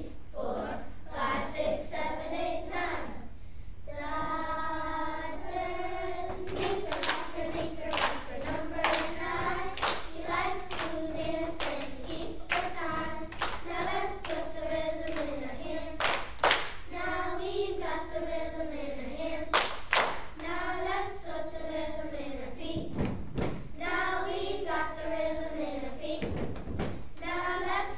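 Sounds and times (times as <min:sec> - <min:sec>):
children's choir singing: 0:00.0 - 0:23.1, 0:23.8 - 0:26.5, 0:27.2 - 0:27.9
sharp hand claps: 0:06.3 - 0:07.3, 0:07.9 - 0:09.2, 0:09.8 - 0:10.1, 0:12.5 - 0:14.4, 0:16.0 - 0:16.8, 0:19.5 - 0:20.4.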